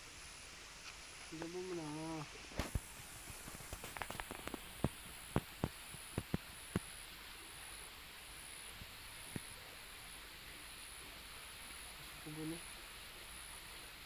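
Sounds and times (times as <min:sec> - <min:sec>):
steady hiss: 0:00.0 - 0:14.0
insect calling in pulses: 0:00.8 - 0:02.8, 0:11.8 - 0:13.7.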